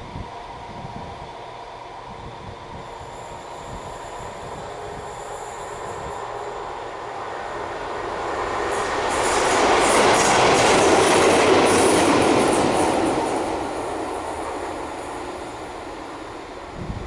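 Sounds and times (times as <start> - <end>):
diesel locomotive passing: 0.0 - 17.0.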